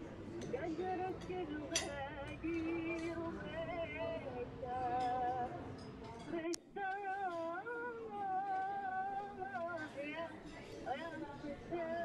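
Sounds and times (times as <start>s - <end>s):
person singing with vibrato: 6.3s - 12.0s.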